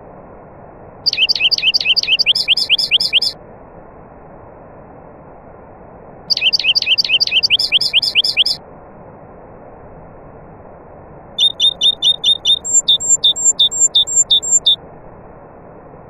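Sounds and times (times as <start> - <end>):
steady low hiss: 0.0 - 6.8, 7.4 - 16.0
songbird whistled phrase: 1.1 - 3.4, 6.3 - 8.6, 11.4 - 14.8.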